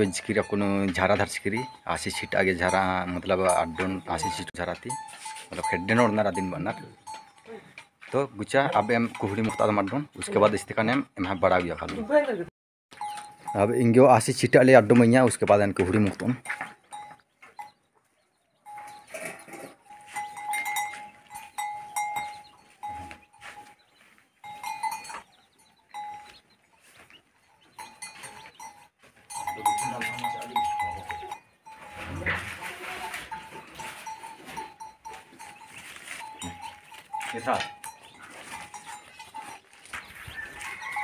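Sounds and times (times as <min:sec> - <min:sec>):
cattle bell ringing: 0:00.0 - 0:11.4, 0:12.9 - 0:17.8, 0:18.6 - 0:26.6, 0:27.4 - 0:41.0
cattle noises: 0:00.0 - 0:12.3, 0:13.0 - 0:41.0.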